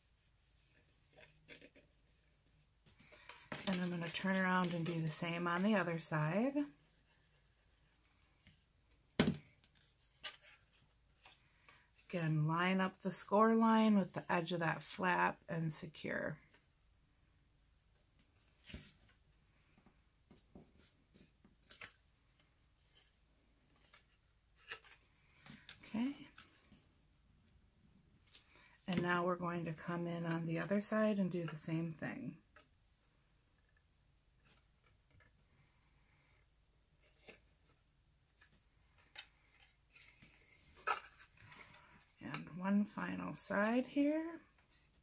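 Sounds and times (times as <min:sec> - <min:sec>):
cardstock crackling and rustling: 0:03.0 - 0:05.8.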